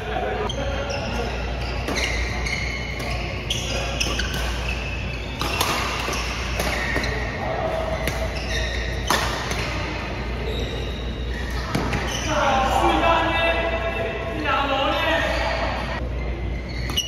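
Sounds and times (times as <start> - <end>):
shoes squeaking on court: 0.4 - 12.8, 15.2 - 17.0
rackets hitting shuttlecock: 1.8 - 10.0.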